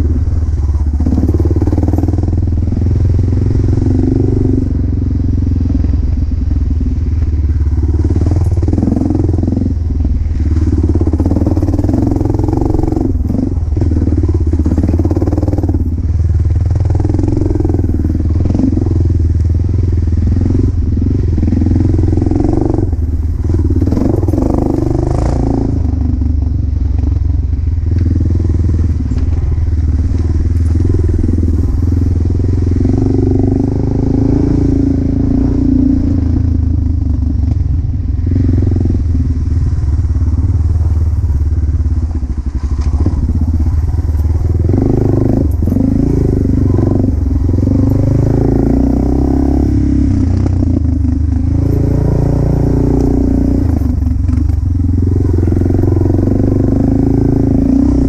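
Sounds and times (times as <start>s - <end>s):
dirt bike engine revving: 42.5s - 58.0s.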